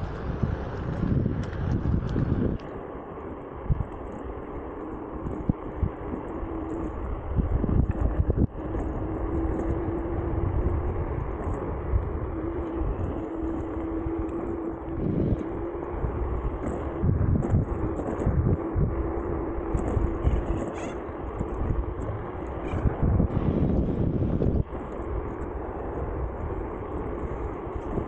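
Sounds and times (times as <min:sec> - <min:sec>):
electric scooter motor hum: 0:00.0 - 0:28.0
low rumble: 0:00.0 - 0:28.0
wind buffeting microphone: 0:00.0 - 0:28.0.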